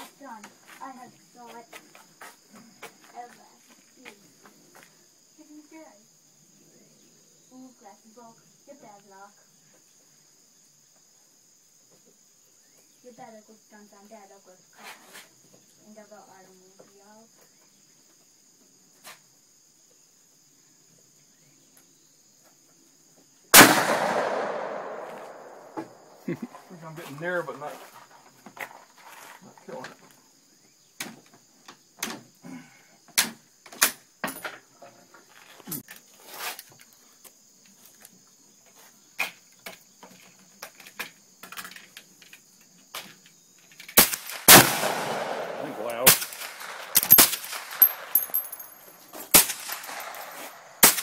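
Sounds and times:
crickets chirring: 0.0 - 51.0
rifle shot with echo: 23.6 - 26.2, 44.0 - 48.4.

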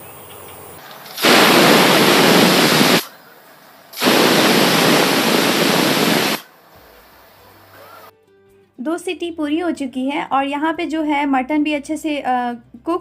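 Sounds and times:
pressure cooker whistle: 4.0 - 6.4.

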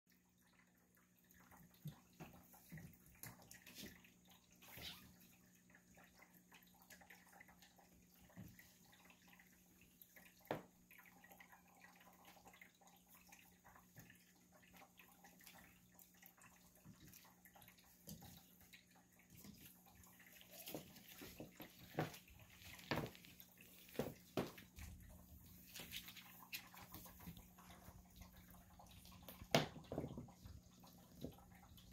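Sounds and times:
soft taps and rustles: 20.5 - 28.0.

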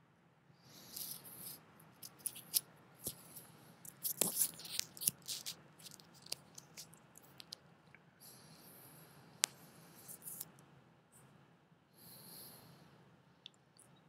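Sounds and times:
faint clicks and crackles: 0.8 - 8.1.

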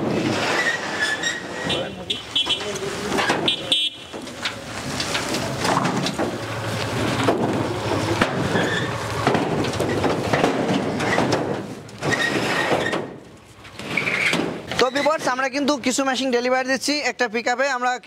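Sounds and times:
knocks and scrapes: 0.0 - 15.6
short high squeaks: 0.4 - 2.7, 12.0 - 13.1, 13.8 - 15.2.

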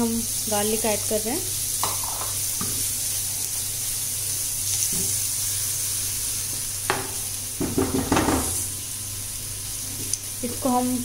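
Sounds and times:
garlic sizzling in hot oil: 0.0 - 11.0
spatula scraping and tapping pan: 1.8 - 2.8, 6.9 - 8.6.

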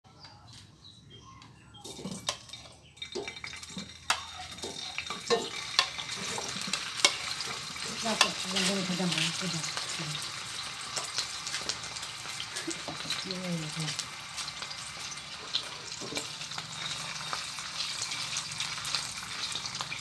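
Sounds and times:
oil popping and spattering: 1.8 - 15.3
sausages sizzling in hot oil: 1.8 - 20.0.

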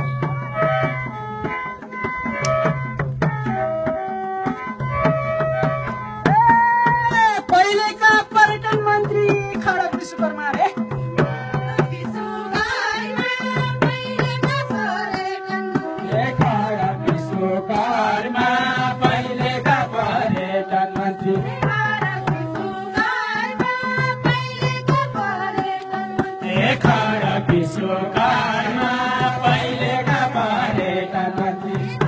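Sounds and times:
hand drum beat: 0.0 - 32.0
held keyboard notes: 0.0 - 32.0
man singing into a microphone: 16.0 - 21.7, 26.4 - 32.0.

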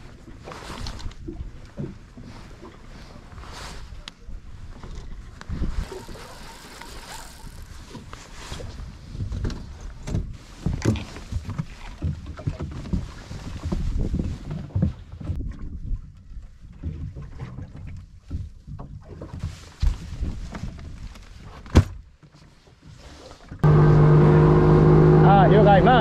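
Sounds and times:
water lapping against hull: 0.0 - 26.0
wind on microphone: 3.4 - 11.7, 12.4 - 17.3
knocks and bumps on boat: 9.2 - 16.1.

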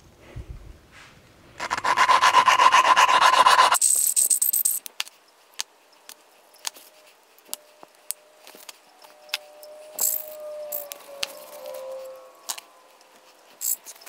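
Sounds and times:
valve lapping gritty rasping: 1.6 - 3.8.

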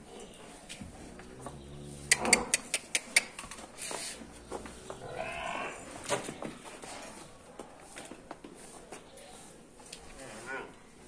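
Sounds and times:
sharp clicks: 2.1 - 3.6.

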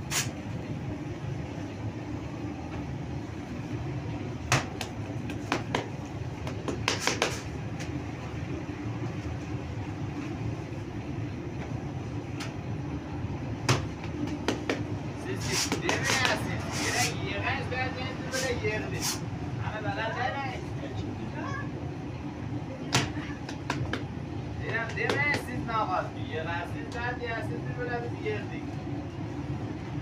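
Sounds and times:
bakery machinery humming: 0.0 - 30.0
hands slapping dough: 4.5 - 7.5, 13.6 - 14.9, 15.5 - 16.5, 22.9 - 25.6.

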